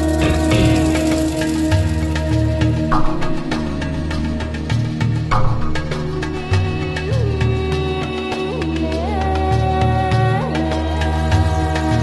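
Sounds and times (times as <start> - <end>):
held melody note: 0.0 - 2.0
sustained low bass: 0.0 - 7.8
light steady percussion: 0.0 - 12.0.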